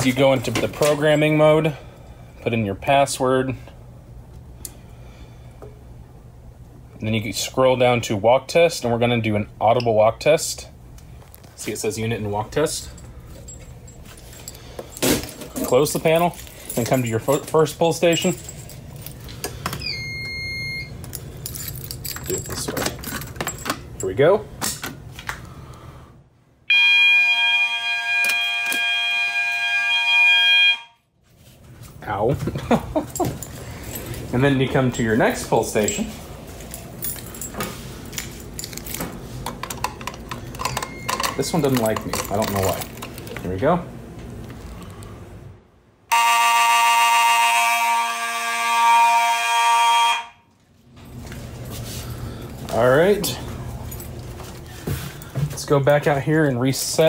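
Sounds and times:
fire alarm horn buzzy tone: 19.8s - 21.0s, 26.6s - 31.2s, 46.1s - 50.6s.

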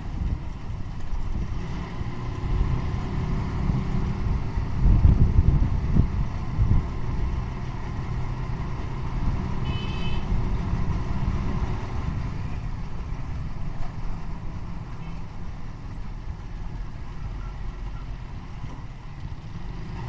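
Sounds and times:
motorcycle engine and road rumble: 0.0s - 20.0s
vehicle horn beeps: 9.6s - 10.4s.

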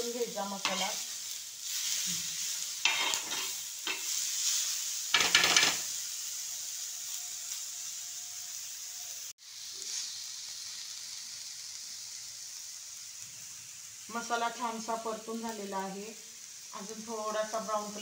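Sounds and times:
masala frying in oil: 0.0s - 18.0s
steel spoon scraping and stirring: 0.6s - 1.1s, 2.8s - 4.4s.

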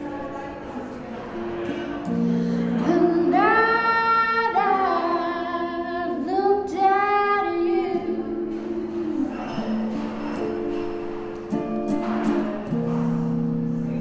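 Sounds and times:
woman singing slow melody: 2.2s - 9.9s.

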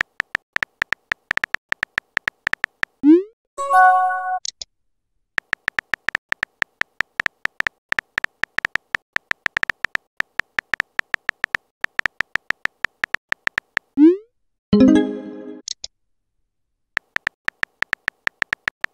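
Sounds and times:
phone keyboard typing clicks: 0.0s - 3.0s, 5.4s - 14.0s, 17.0s - 18.9s.

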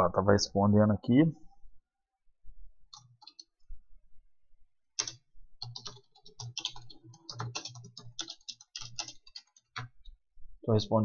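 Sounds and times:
typing on computer keyboard: 2.9s - 3.5s, 5.0s - 10.0s.

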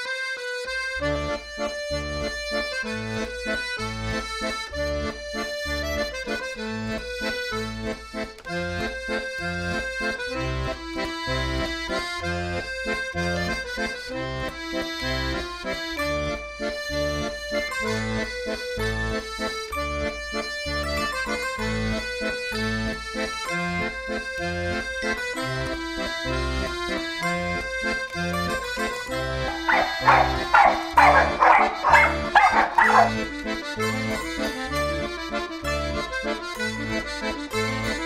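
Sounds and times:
instrumental accordion music: 0.0s - 38.0s.

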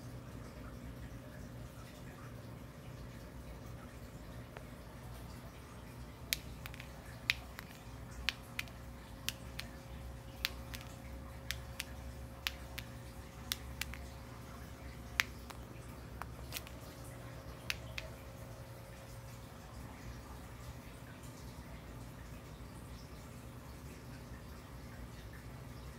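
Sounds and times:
faint appliance hum: 0.0s - 25.9s
jumping bean ticking on tile: 6.0s - 18.3s.

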